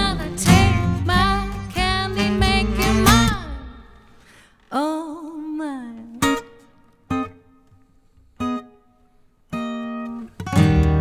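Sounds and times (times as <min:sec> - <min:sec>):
strummed guitar chords: 0:00.0 - 0:03.9, 0:09.6 - 0:11.0.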